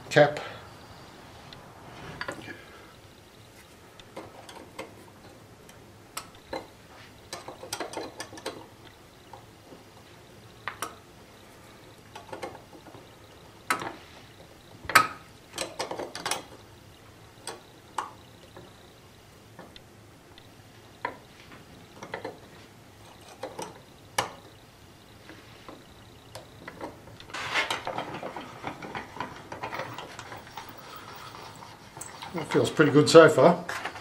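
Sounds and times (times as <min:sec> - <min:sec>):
metal parts clicking: 0:26.3 - 0:32.9.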